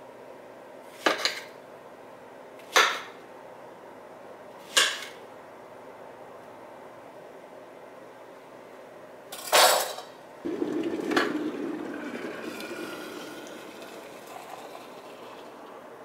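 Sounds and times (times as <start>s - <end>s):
kitchenware clattering: 9.4s - 10.2s
water pouring into mug: 10.4s - 16.0s.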